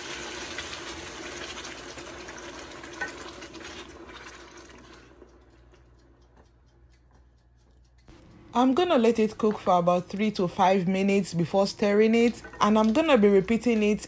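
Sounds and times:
spatula stirring: 2.8 - 6.4.

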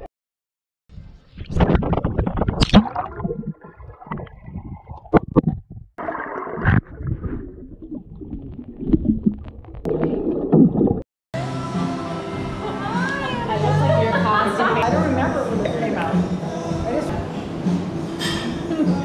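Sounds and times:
exhaled breath bubbling: 1.4 - 11.0
underwater gurgling and bubbling: 1.4 - 11.0.

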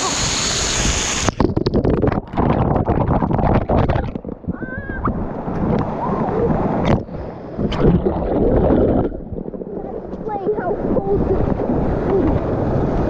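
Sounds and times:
water splashing and gurgling: 0.0 - 13.0.

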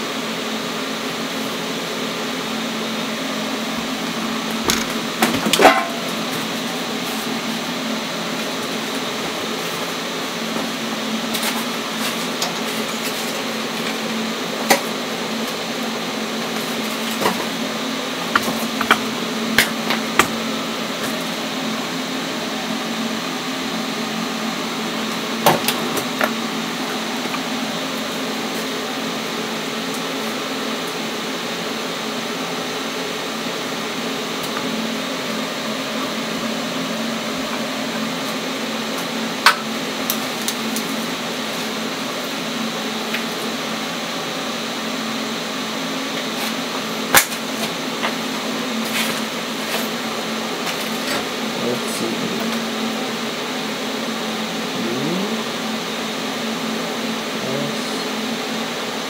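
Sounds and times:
tools clicking and knocking: 18.4 - 19.1.

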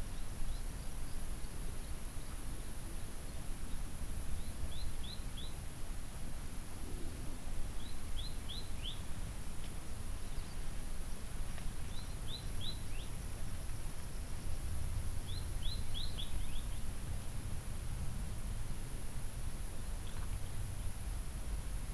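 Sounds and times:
bird chirping: 4.4 - 5.6, 7.8 - 9.0, 11.9 - 13.1, 15.2 - 16.9.

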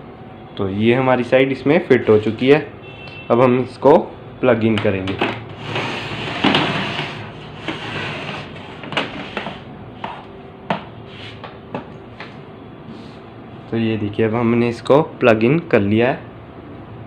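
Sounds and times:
printer scraping across table: 5.5 - 10.3.

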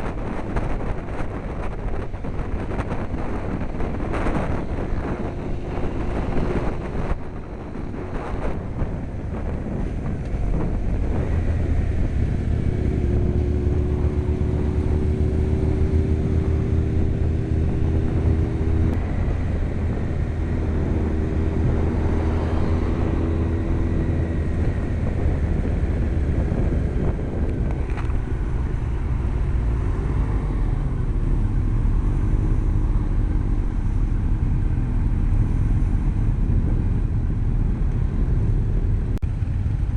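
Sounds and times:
wind rush: 0.0 - 39.9.

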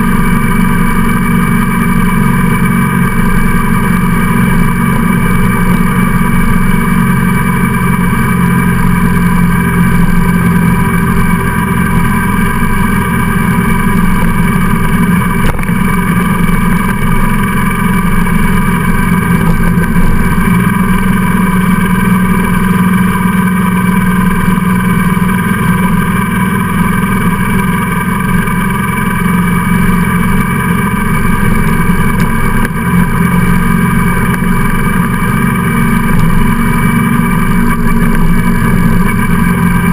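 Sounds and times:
motorcycle engine running: 0.0 - 39.9
wind and road noise: 0.0 - 39.9.

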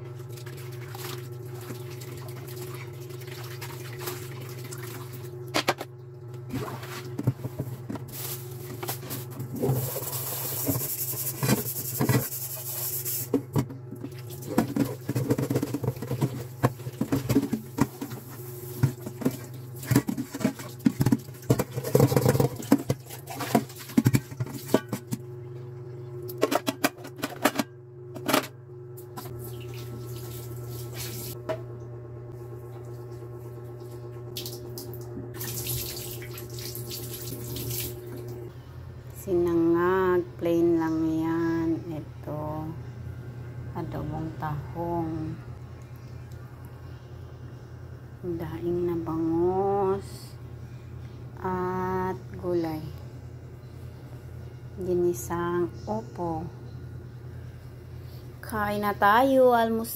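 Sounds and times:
steady low hum: 0.0 - 59.9
tap water running and splashing: 0.3 - 5.3, 29.4 - 31.4, 34.4 - 38.4
scrubbing dishes: 6.5 - 25.2.

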